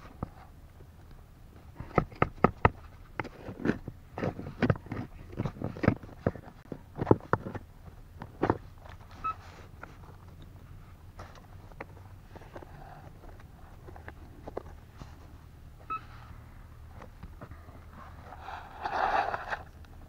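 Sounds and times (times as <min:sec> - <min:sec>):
hand tool scraping stony soil: 0:17.5 - 0:19.8.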